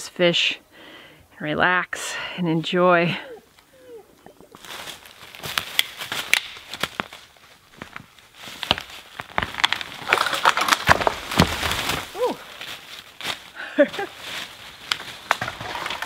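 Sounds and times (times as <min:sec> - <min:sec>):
twigs and leaves crackling: 0:03.3 - 0:16.0
dry wood cracking and snapping: 0:04.6 - 0:13.6, 0:14.2 - 0:16.0
tree trunk falling into leaves: 0:04.6 - 0:16.0.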